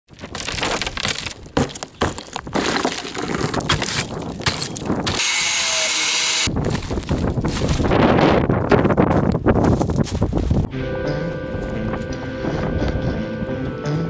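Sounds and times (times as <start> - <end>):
model wall cracking and crunching: 0.1 - 5.7
angle grinder cutting: 5.1 - 6.5.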